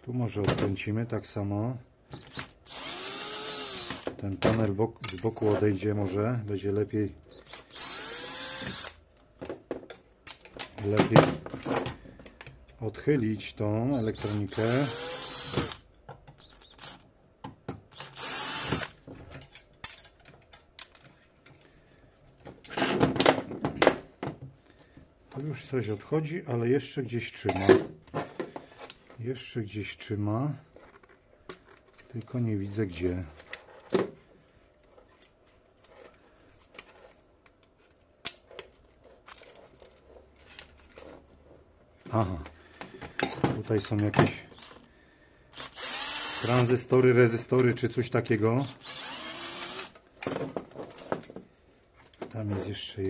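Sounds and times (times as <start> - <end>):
cordless drill running: 2.7 - 4.1, 7.5 - 9.0, 14.6 - 15.8, 18.0 - 19.0, 45.6 - 46.6, 48.8 - 50.0
metal parts clicking and knocking: 18.8 - 21.2.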